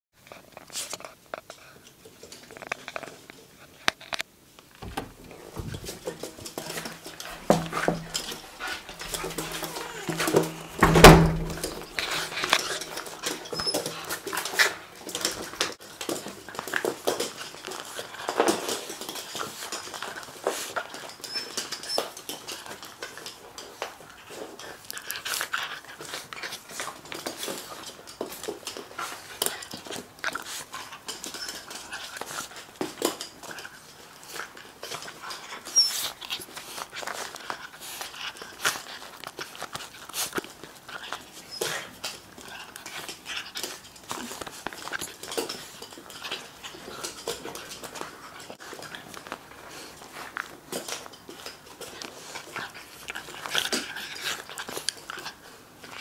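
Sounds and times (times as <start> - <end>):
scuffling and handling noise: 2.3 - 21.2
loud thump: 10.8 - 11.8.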